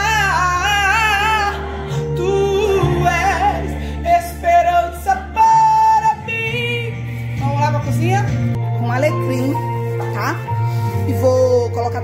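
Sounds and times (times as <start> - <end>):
woman singing with vibrato: 0.0 - 8.3
backing music: 0.0 - 12.0.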